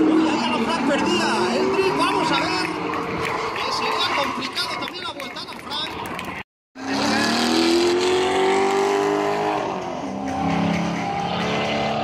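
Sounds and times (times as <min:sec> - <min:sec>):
car engine at high revs: 0:00.0 - 0:04.2, 0:06.8 - 0:12.0.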